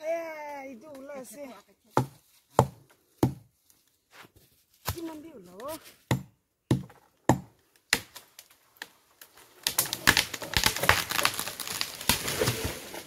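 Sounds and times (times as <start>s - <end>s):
chopping strikes on wood: 1.9s - 3.5s, 6.0s - 8.2s
leaves and twigs breaking: 7.8s - 13.0s.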